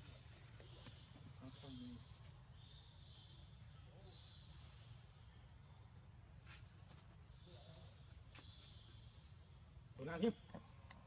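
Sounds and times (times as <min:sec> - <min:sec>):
insects buzzing: 0:00.0 - 0:11.0.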